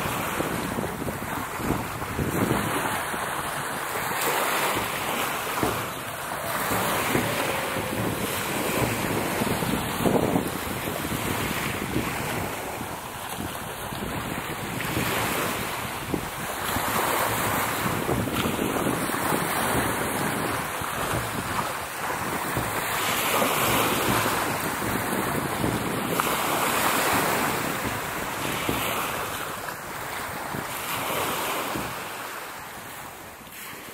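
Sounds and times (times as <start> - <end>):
sea waves washing: 0.0 - 33.9
wind buffeting microphone: 0.0 - 33.9.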